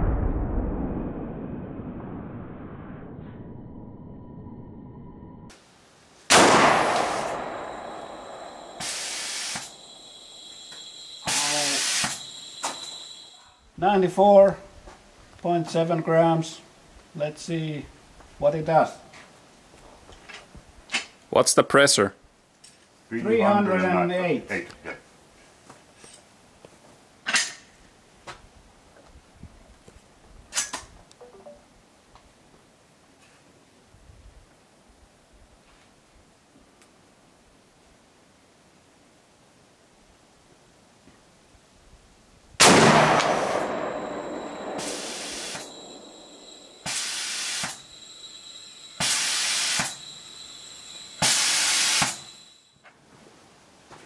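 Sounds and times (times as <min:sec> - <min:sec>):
air rifle shot: 0:06.3 - 0:09.8, 0:42.6 - 0:46.1
gas hissing through valve: 0:08.1 - 0:13.5, 0:44.8 - 0:52.6.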